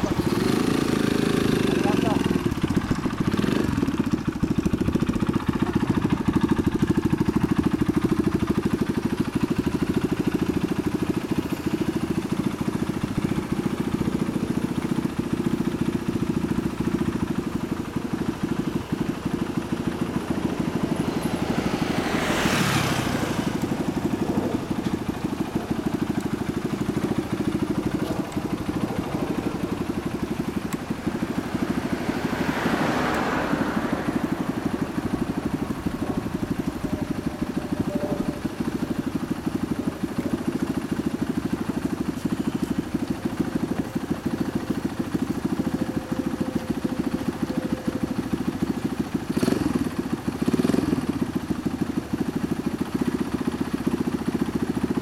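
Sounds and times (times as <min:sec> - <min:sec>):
passing vehicle: 0:00.0 - 0:14.3, 0:16.2 - 0:40.3
motorcycle engine idling: 0:00.0 - 0:55.0.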